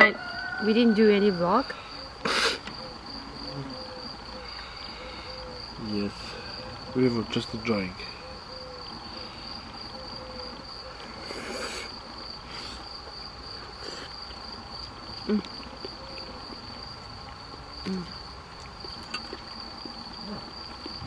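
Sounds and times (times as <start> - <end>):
insects trilling: 0.0 - 21.0.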